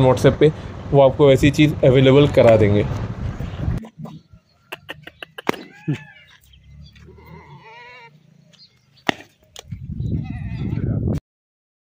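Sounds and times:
goat bleating: 4.8 - 8.2, 10.1 - 11.0.

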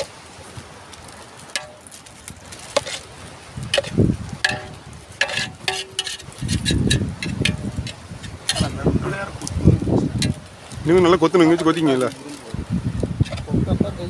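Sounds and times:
wind buffeting microphone: 0.0 - 14.0
spatula stirring in metal pot: 2.7 - 3.0, 3.7 - 8.8, 10.2 - 10.7, 13.2 - 13.5.

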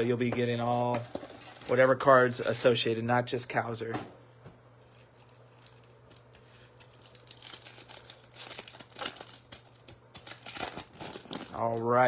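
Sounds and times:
foil wrapper crinkling and tearing: 5.3 - 12.0.

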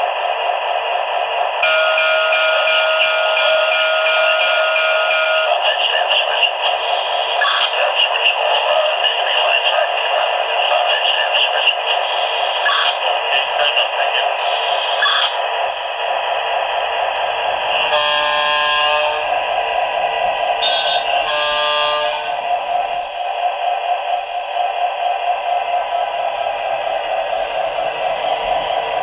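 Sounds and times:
model locomotive engine sounds: 0.0 - 29.0
locomotive horn blasts: 1.6 - 5.5, 17.9 - 19.3, 20.6 - 22.4.

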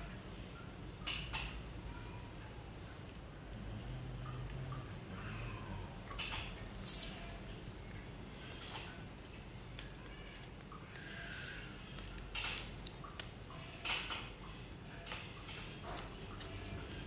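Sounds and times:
small hard parts clicking and scraping: 9.7 - 17.0.

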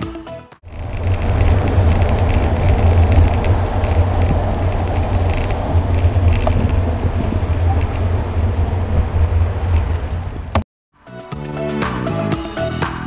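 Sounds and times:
wind rumble on microphone: 0.6 - 10.6
traffic noise: 0.6 - 10.7
bicycle rattling ticks: 0.7 - 10.6.

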